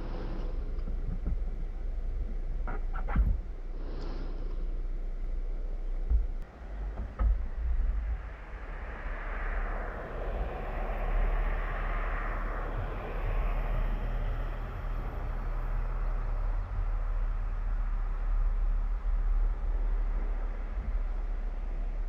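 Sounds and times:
steady low rumble: 0.0 - 22.0
tyre hiss on wet road: 3.8 - 4.5.

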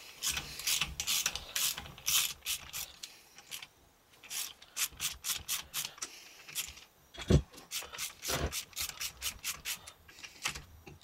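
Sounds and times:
hand ratchet clicking: 0.2 - 6.7.

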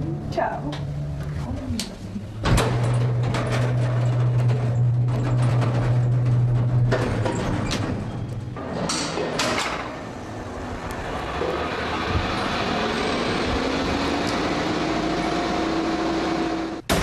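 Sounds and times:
elevator rumble and whine: 0.0 - 17.0.

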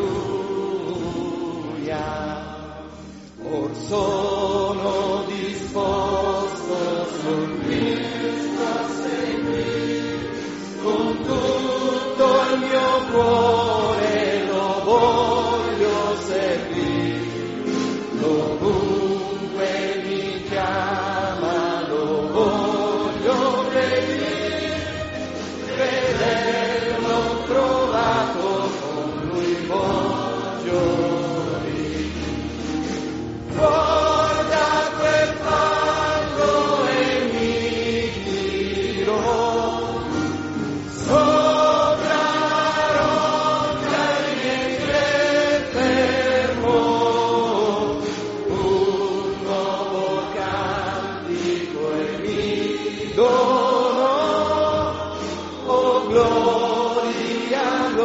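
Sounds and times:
choir singing a hymn: 0.0 - 58.0.

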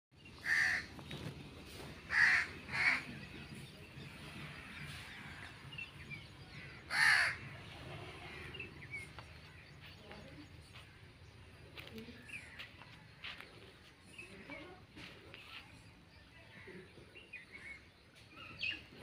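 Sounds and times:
crow cawing: 0.4 - 0.9, 2.1 - 3.0, 6.6 - 7.5.

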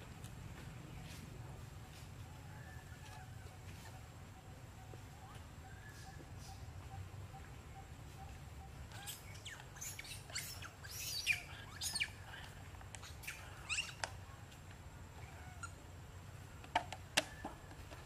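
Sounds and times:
animal chirps and squeaks: 2.5 - 14.2, 15.2 - 15.8.

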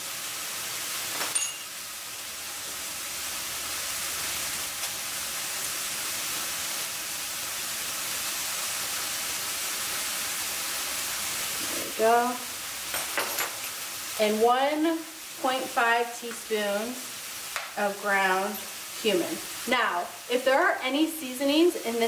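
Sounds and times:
meat sizzling in frying pan: 0.0 - 22.0
short clink: 1.3 - 1.7.

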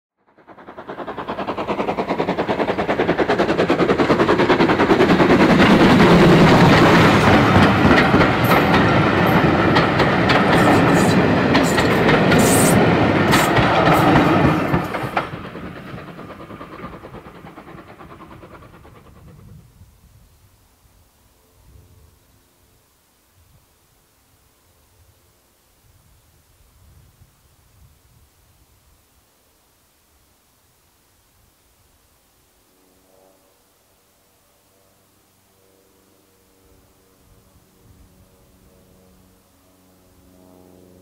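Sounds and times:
train wheels clattering over rail joints: 0.3 - 19.5.

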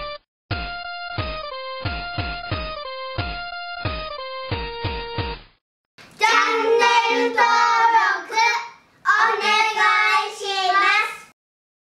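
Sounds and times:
child singing: 6.2 - 11.3.

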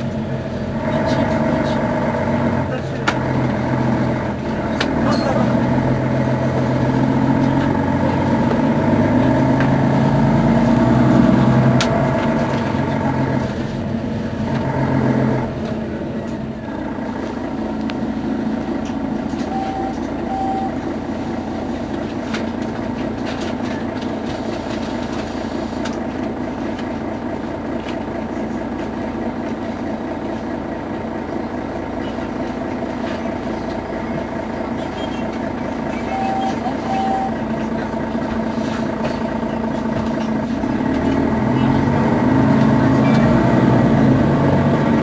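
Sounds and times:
bus diesel engine idling: 0.0 - 45.0
short beeps: 19.4 - 20.8, 35.9 - 37.4.

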